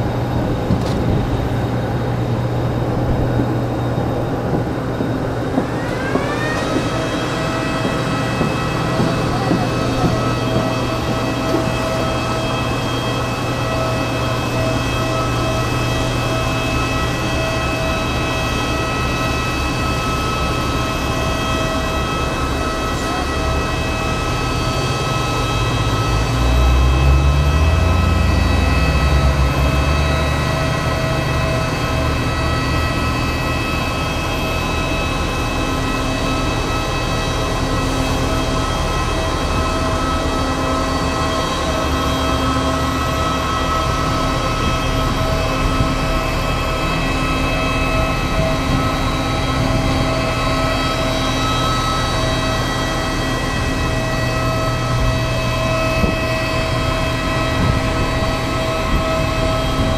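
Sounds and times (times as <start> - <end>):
aircraft cabin engine hum: 0.0 - 59.9
constant whining tones: 0.0 - 59.9
low rumble rising in pitch: 22.9 - 35.4.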